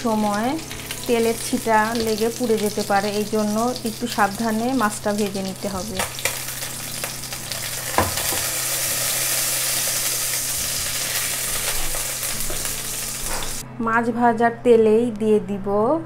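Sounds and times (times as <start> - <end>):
fish sizzling in hot oil: 0.0 - 13.6
knock: 8.0 - 8.2.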